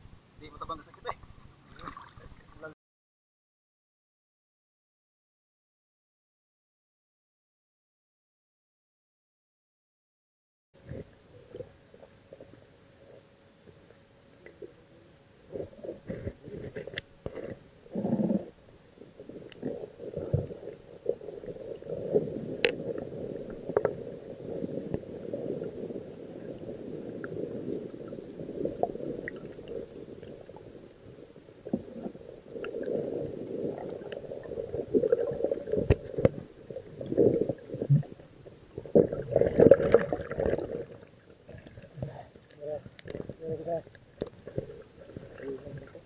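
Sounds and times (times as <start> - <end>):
muffled underwater gurgle: 14.4 - 46.0
small underwater clicks and knocks: 15.6 - 17.6, 22.6 - 24.0, 33.8 - 38.1, 38.8 - 45.8.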